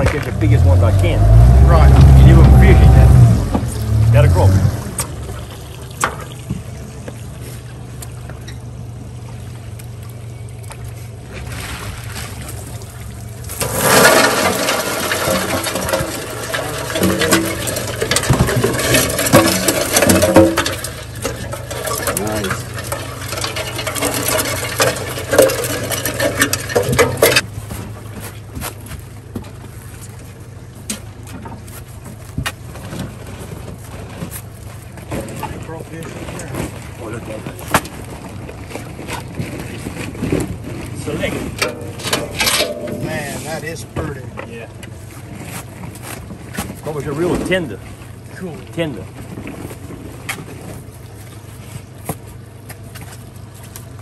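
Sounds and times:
outboard motor idling: 0.0 - 54.0
water streaming off trap: 11.4 - 27.4
crawfish shells clattering on metal: 13.6 - 27.5, 41.6 - 43.3.

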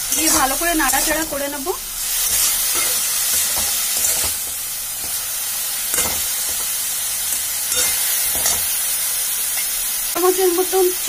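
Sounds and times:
metal spatula scraping pan: 0.0 - 1.4, 2.1 - 5.2, 7.3 - 8.8
vegetables sizzling in oil: 0.0 - 11.0.

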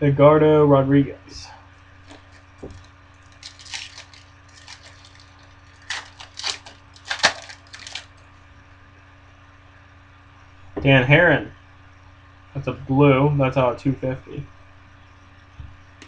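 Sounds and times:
foil wrapper crinkling and tearing: 2.0 - 8.2.

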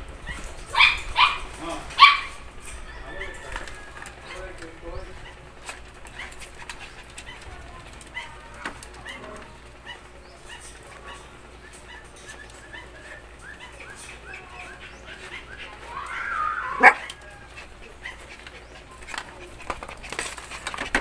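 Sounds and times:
small dog whimpering: 11.8 - 18.2.

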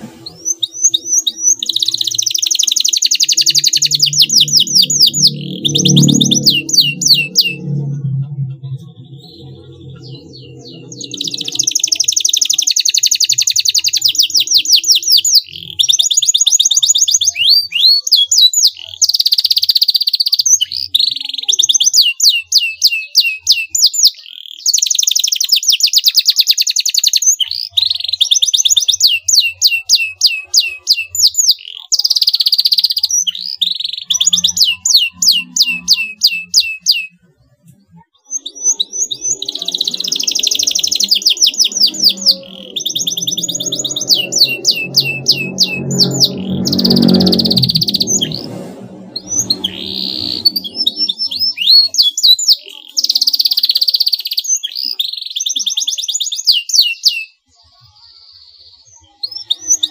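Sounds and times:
canary singing trills: 0.0 - 59.9.

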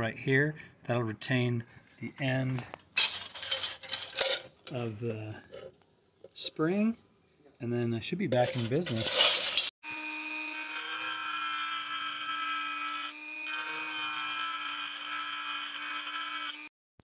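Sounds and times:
rotary tool grinding plastic: 8.4 - 9.7, 10.5 - 16.7.

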